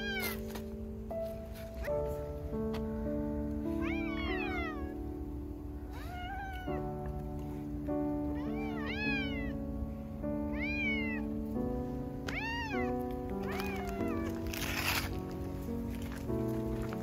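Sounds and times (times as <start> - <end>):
cat meowing: 0.0 - 0.5, 3.7 - 5.1, 5.8 - 7.1, 8.2 - 9.6, 10.4 - 11.4, 12.2 - 15.1
background music with held notes: 0.0 - 17.0.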